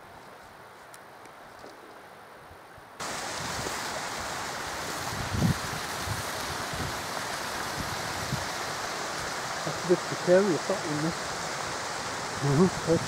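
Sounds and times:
rushing stream water: 3.0s - 13.0s.

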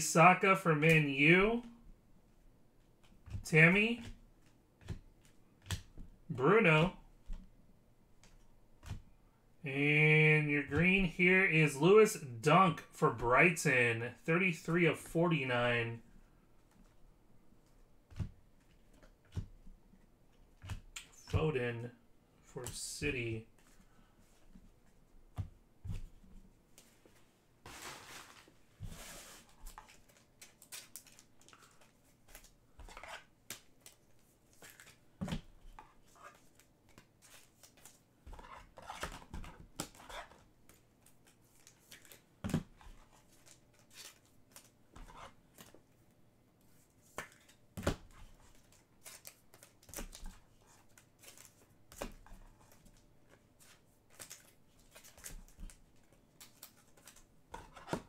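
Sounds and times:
trading card packaging rustling: 27.7s - 35.0s, 48.2s - 58.0s.

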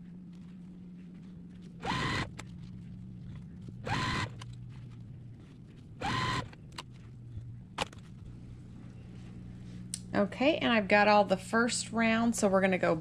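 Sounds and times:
low steady hum: 0.0s - 13.0s
small electric motor whirring: 1.8s - 2.5s, 3.8s - 4.6s, 6.0s - 6.6s.

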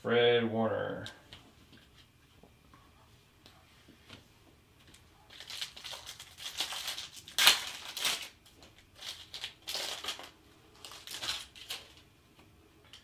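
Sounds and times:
plastic wrapper crinkling and tearing: 4.9s - 12.1s.

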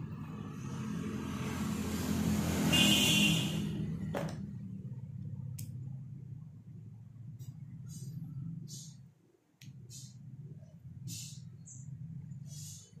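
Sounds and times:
motor vehicle passing: 0.0s - 5.1s.

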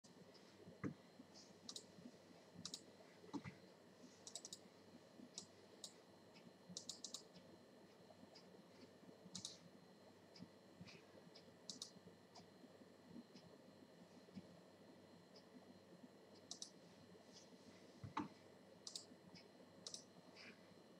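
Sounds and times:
computer mouse clicks: 1.6s - 1.9s, 2.6s - 3.6s, 4.2s - 4.6s, 5.4s - 7.5s, 9.3s - 9.7s, 11.4s - 12.5s, 16.3s - 16.8s, 18.1s - 20.5s.

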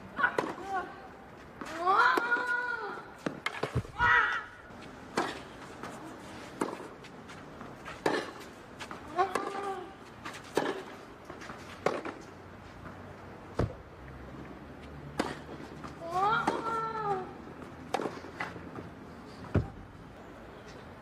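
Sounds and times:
tennis ball hits: 0.2s - 0.8s, 9.1s - 12.2s, 15.1s - 17.2s, 17.8s - 18.6s.

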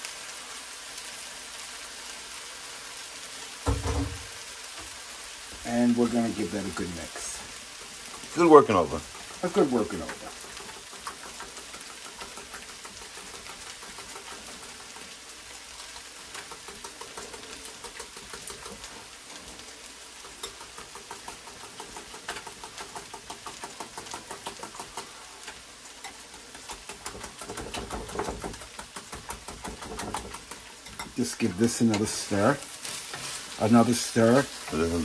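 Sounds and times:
whisk clicking against bowl: 26.6s - 32.4s.

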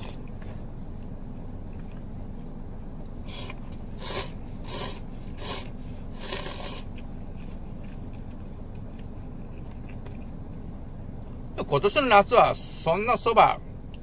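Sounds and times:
man slurping noodles: 3.3s - 6.9s.

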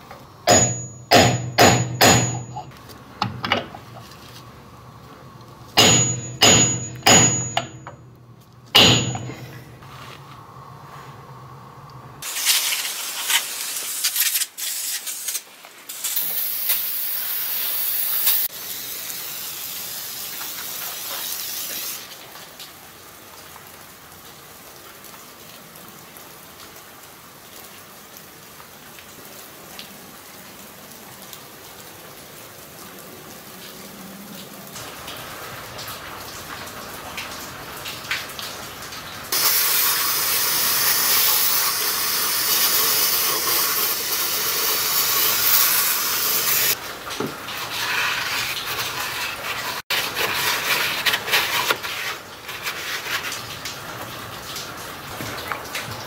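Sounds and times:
aerosol spray hissing: 12.2s - 22.0s.

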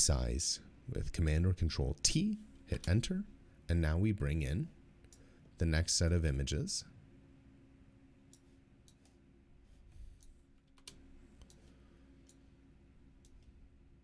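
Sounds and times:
faint room hum: 0.0s - 14.0s
computer mouse clicks: 8.3s - 9.2s, 10.2s - 12.4s, 13.2s - 13.6s.

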